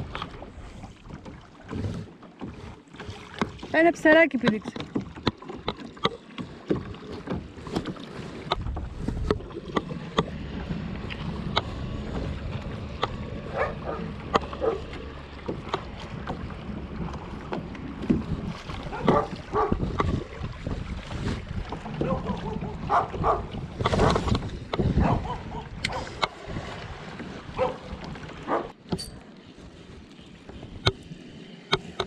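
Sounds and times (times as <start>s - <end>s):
small waves lapping against hull: 0.0s - 32.0s
wind rumbling on microphone: 7.6s - 28.8s.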